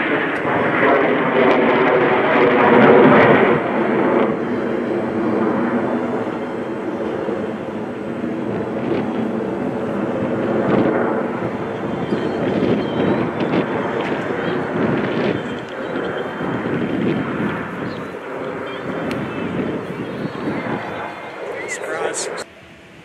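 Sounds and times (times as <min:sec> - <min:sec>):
jet noise overhead: 0:00.0 - 0:23.0.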